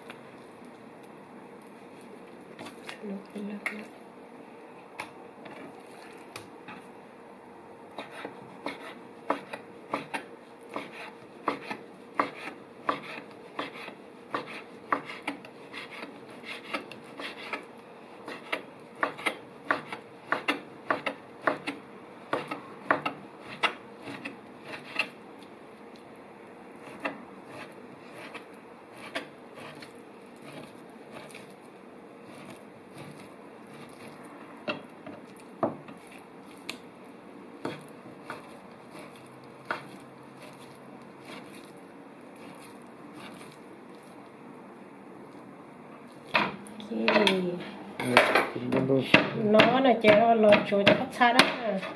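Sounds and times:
knife chopping on wooden board: 8.0s - 25.2s, 26.8s - 31.5s, 37.6s - 40.6s, 48.1s - 51.9s.

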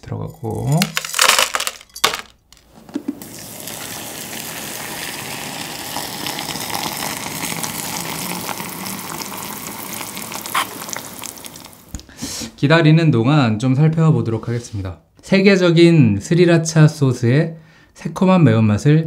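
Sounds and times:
hot water pouring into cup: 3.0s - 12.0s.

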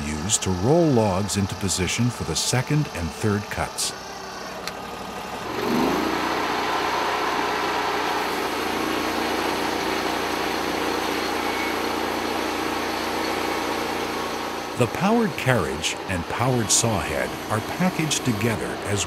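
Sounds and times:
sawmill engine running: 0.0s - 19.0s
band blade sawing log: 5.4s - 7.2s.

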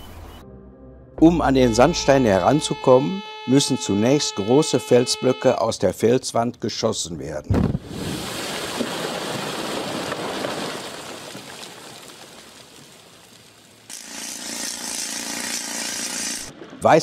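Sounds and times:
rock crashing and rubble sliding: 7.9s - 13.9s
pneumatic rock drill: 13.9s - 16.5s.

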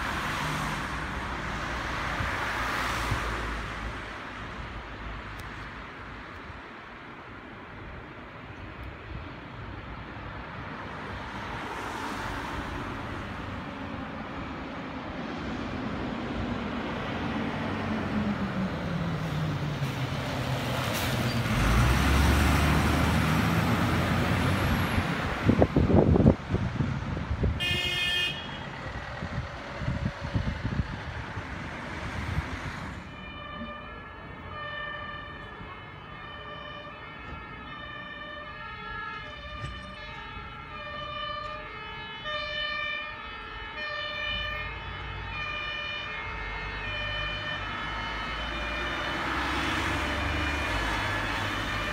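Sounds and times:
road noise: 0.0s - 51.9s
two-tone emergency siren: 33.0s - 51.9s.

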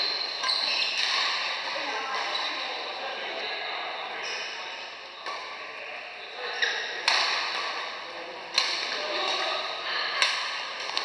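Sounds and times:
rackets hitting shuttlecock: 6.7s - 9.4s, 10.2s - 11.0s.

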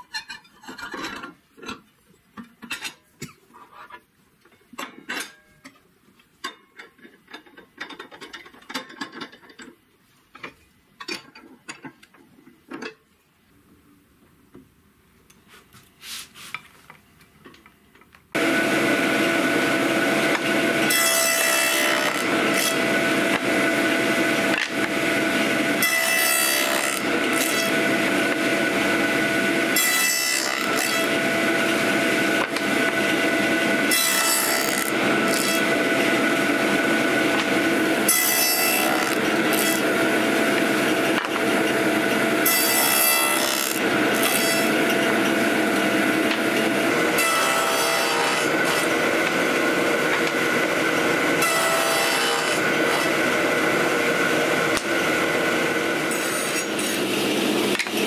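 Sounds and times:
table saw whining: 18.4s - 58.0s.

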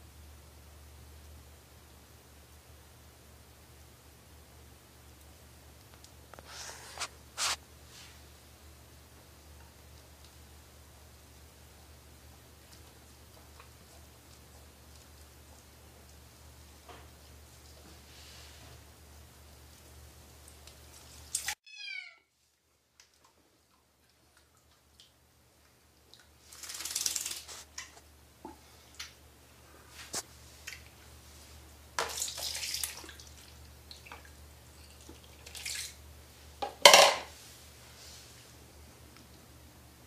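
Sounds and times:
water drips: 22.9s - 27.9s, 32.0s - 36.0s
bath water splashing: 26.1s - 27.9s, 31.9s - 36.0s.

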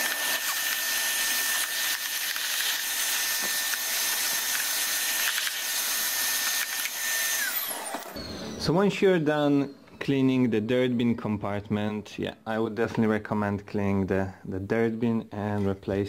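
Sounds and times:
vacuum cleaner running: 0.0s - 8.7s
vacuum motor winding down: 0.0s - 8.7s.

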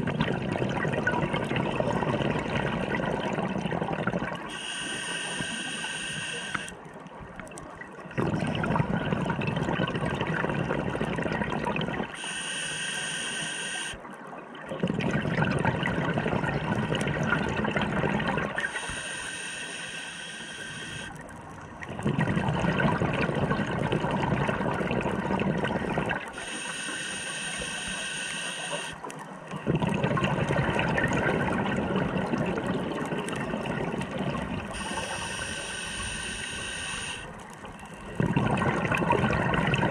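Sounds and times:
exhaled bubbles rushing: 0.0s - 4.6s, 7.4s - 12.2s, 14.7s - 19.0s, 20.9s - 26.4s, 28.8s - 35.6s, 36.6s - 39.9s
diver inhaling through regulator: 4.5s - 6.8s, 12.1s - 14.0s, 18.6s - 21.2s, 26.3s - 29.0s, 34.6s - 38.6s.

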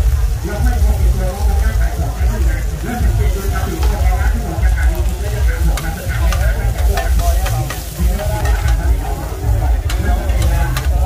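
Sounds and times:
food sizzling on griddle: 0.0s - 11.0s
metal spatulas scraping griddle: 4.9s - 11.0s.

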